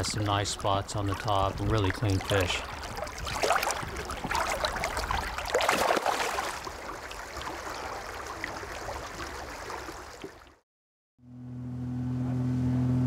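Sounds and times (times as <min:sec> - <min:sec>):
river flowing: 0:00.0 - 0:10.6
water splashing around hands: 0:00.0 - 0:10.6.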